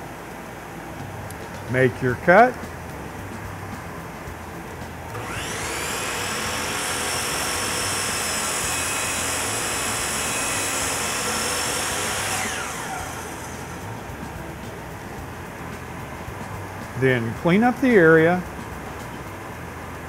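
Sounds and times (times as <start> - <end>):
dust collector hum: 0.0 - 20.0
miter saw motor whining: 5.1 - 14.7.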